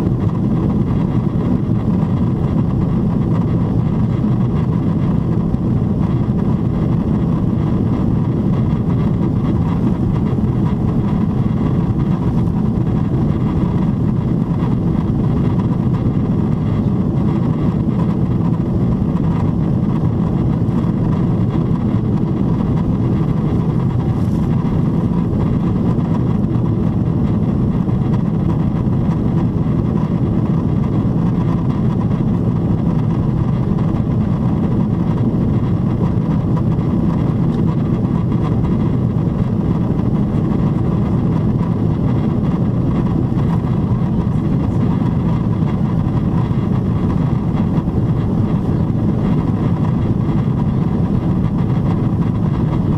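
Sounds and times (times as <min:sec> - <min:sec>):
airplane cabin airflow and engine rush: 0:00.0 - 0:52.9.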